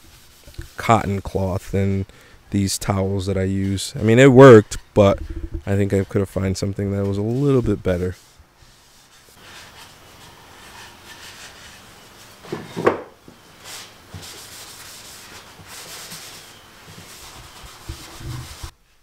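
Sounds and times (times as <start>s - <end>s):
paper towel rubbing on wood: 0.0s - 1.5s, 6.9s - 12.8s, 13.6s - 18.8s.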